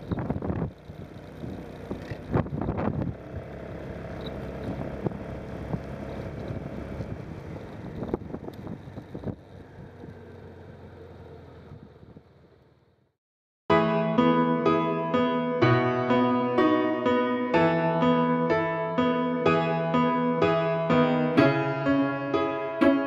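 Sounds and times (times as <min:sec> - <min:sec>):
wind noise: 0:00.0 - 0:03.5, 0:04.6 - 0:10.2
vehicle engine noise: 0:00.0 - 0:13.1.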